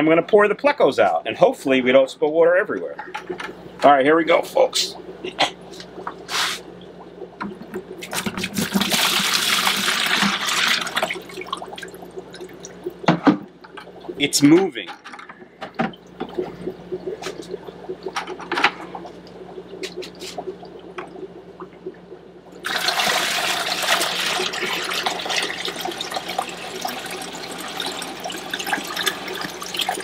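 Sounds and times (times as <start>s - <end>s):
low steady hum: 0.0s - 30.0s
water pouring from bucket: 8.0s - 12.1s, 22.6s - 30.0s.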